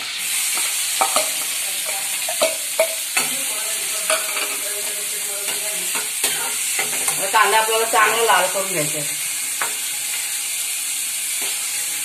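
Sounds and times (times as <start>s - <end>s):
onion sizzling in oil: 0.0s - 12.0s
utensils clinking against pan: 0.5s - 8.6s.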